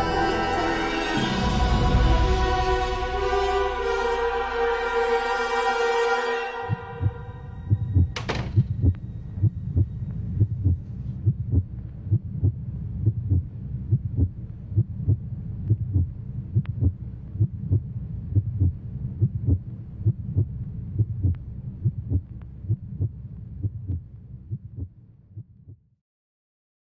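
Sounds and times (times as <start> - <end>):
low steady drone: 0.0 - 24.9
regular thump: 6.7 - 11.6.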